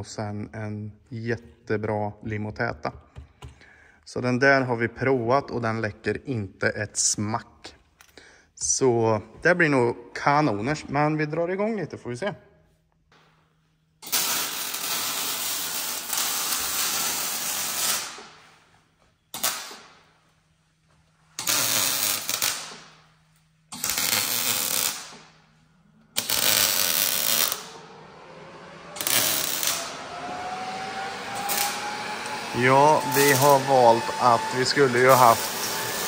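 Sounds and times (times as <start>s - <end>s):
power tool running: 14.0s - 18.3s, 23.7s - 25.2s, 26.0s - 36.0s.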